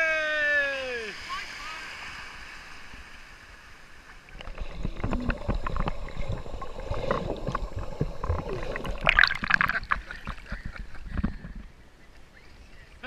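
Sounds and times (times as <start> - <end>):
shallow sea water washing: 1.1 - 11.6
underwater gurgling and bubbles: 3.9 - 11.7.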